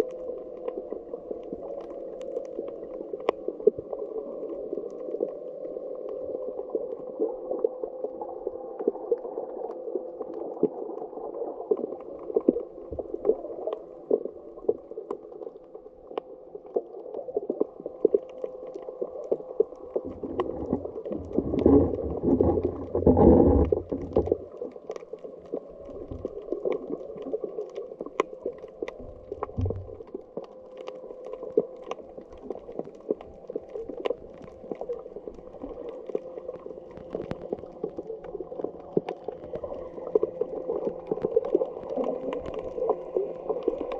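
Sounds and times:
muffled underwater rush: 0:00.0 - 0:43.9
deep underwater surge: 0:20.0 - 0:24.8, 0:29.0 - 0:30.2.

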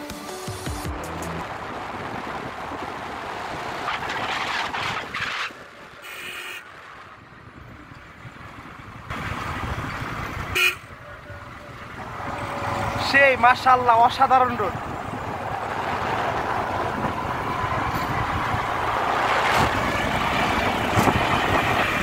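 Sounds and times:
vehicles passing: 0:00.0 - 0:22.0
vehicle horn tooting: 0:06.0 - 0:06.6, 0:10.5 - 0:11.0.

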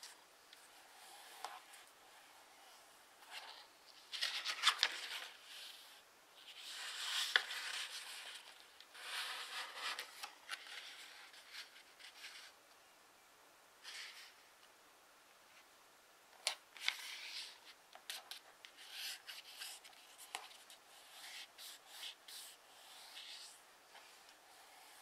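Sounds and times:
paper rustling and folding: 0:03.2 - 0:12.6, 0:16.5 - 0:25.0
paper crackles: 0:03.4 - 0:05.4.

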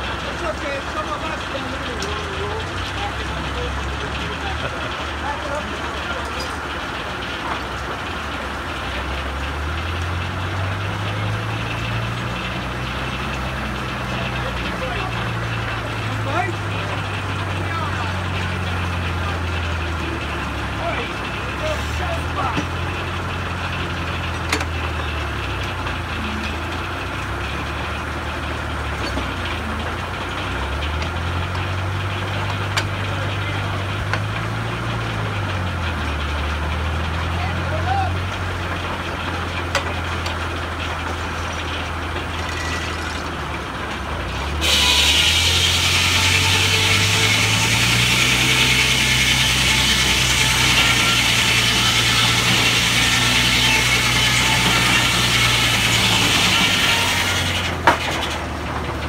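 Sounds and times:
sawmill engine humming: 0:00.0 - 0:59.0.

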